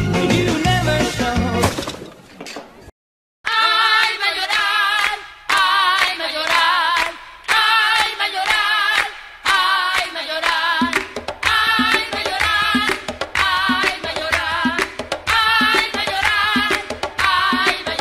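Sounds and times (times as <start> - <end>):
percussion: 0.0 - 2.1, 3.5 - 18.0
woman singing with vibrato: 3.5 - 18.0
handclaps: 4.0 - 18.0.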